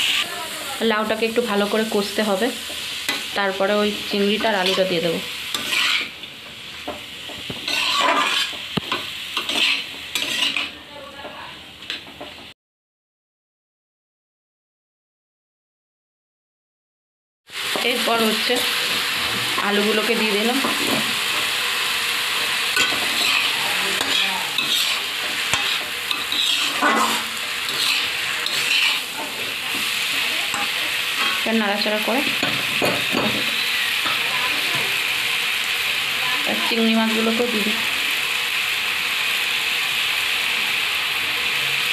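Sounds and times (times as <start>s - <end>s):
food sizzling in oil: 0.0s - 12.5s, 17.5s - 41.9s
metal spatula scraping a pan: 4.2s - 6.3s, 7.4s - 10.8s, 22.3s - 34.8s.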